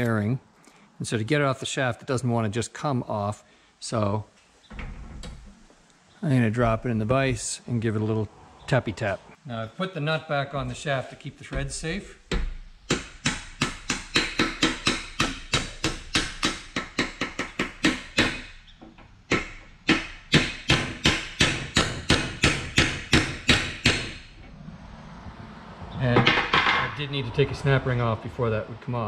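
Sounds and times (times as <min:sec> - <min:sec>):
hammer tapping on metal shaft: 0:12.3 - 0:18.5.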